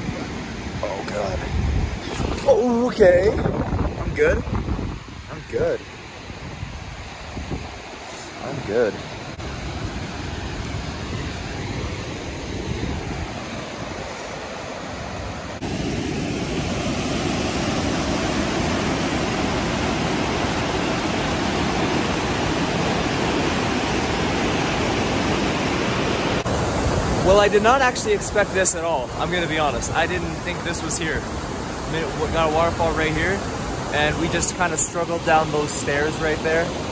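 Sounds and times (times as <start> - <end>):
creek rushing over rocks: 0.0 - 3.9, 12.8 - 36.9.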